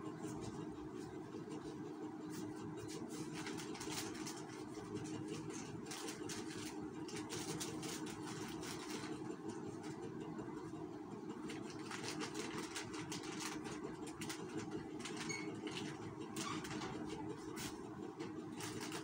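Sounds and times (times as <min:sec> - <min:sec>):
plastic strips rustling: 0:02.4 - 0:10.0, 0:11.4 - 0:17.8, 0:18.5 - 0:19.0.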